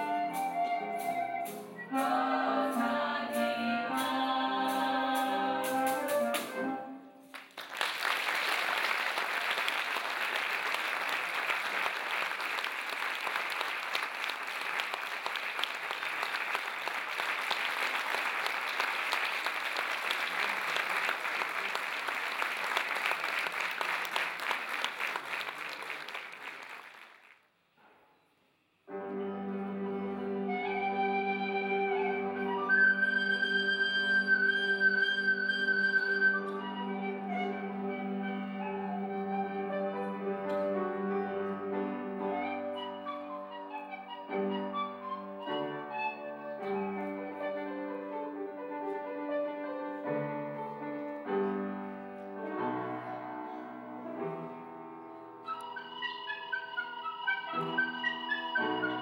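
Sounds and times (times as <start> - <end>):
music: 0.0 - 7.4, 28.8 - 59.0
singing ensemble with instruments: 0.3 - 6.9
audience applauding: 7.3 - 27.4.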